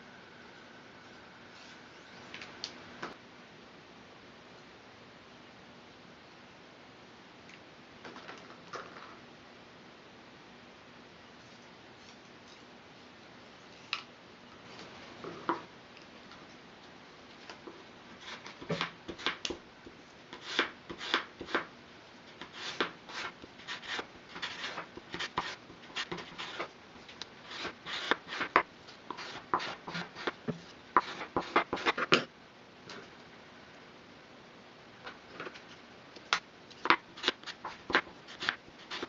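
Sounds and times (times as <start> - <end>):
plastic scraper scraping straw: 27.5 - 32.2, 37.2 - 39.0.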